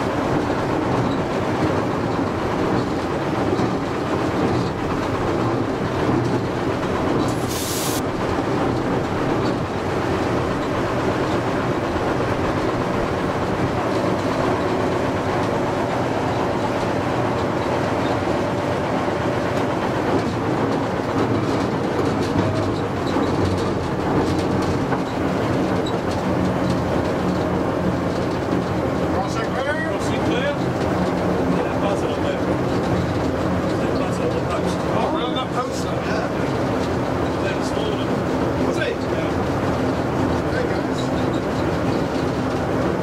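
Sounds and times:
diesel locomotive running: 0.0s - 43.0s
wheels clicking over rail joints: 0.0s - 43.0s
brief hiss: 7.3s - 8.0s.

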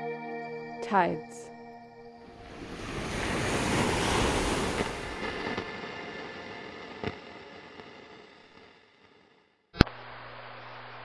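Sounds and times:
ocean wave crashing: 2.1s - 8.4s.

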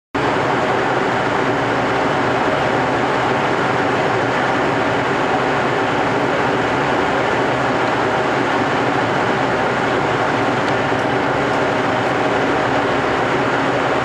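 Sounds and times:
train equipment whirring hum: 0.2s - 14.0s.

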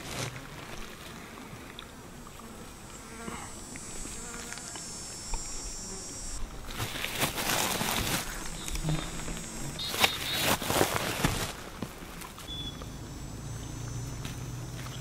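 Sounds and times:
bushes rustling: 0.0s - 1.6s, 2.3s - 15.0s
high thin insect buzz: 2.2s - 10.7s.

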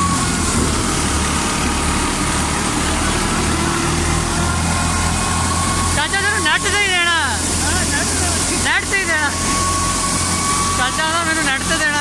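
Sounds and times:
thresher running: 0.0s - 12.0s.

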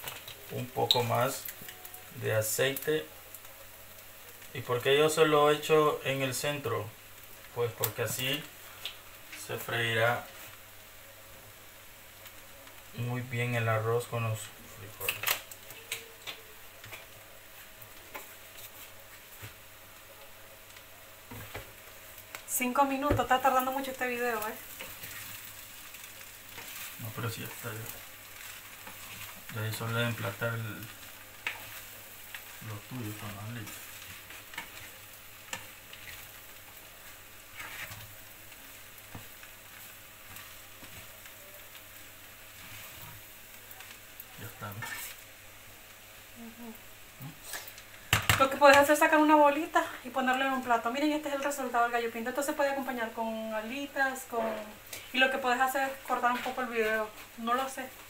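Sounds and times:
food sizzling in oil: 0.0s - 58.0s
spatula scraping a pan: 26.5s - 30.3s, 33.6s - 36.4s, 37.4s - 38.1s, 44.7s - 45.2s.

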